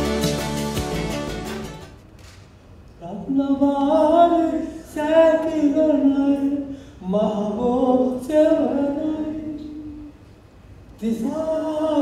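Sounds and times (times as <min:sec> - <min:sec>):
man singing unaccompanied: 0:03.0 - 0:10.1, 0:11.0 - 0:12.0.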